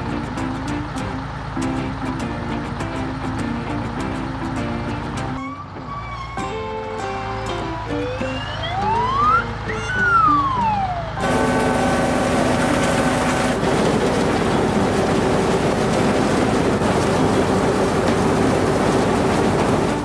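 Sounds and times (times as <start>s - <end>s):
background music: 0.0s - 11.8s
combine harvester running: 0.0s - 20.0s
gliding whistle: 5.4s - 6.6s, 7.6s - 11.9s.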